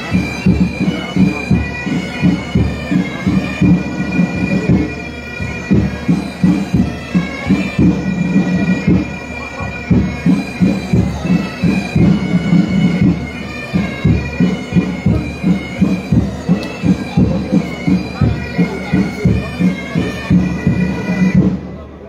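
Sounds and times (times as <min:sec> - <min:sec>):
bagpipes playing slow melody: 0:00.0 - 0:22.0
low drum beats: 0:09.9 - 0:21.7.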